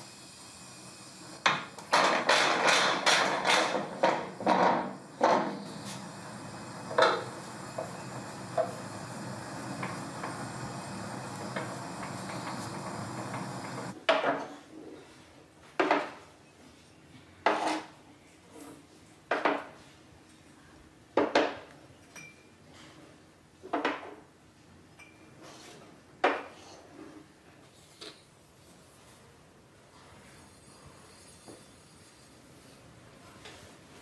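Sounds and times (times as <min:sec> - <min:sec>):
steady hum: 0:00.0 - 0:14.0.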